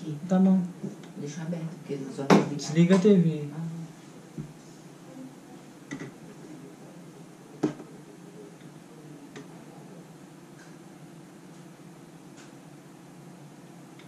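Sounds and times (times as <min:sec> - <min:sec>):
faint background hum: 0:00.0 - 0:14.0.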